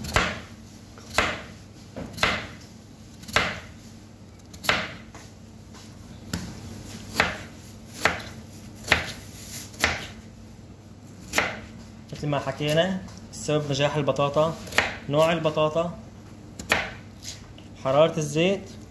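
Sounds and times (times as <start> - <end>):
knife slicing potato: 0.0 - 3.7, 7.1 - 10.2.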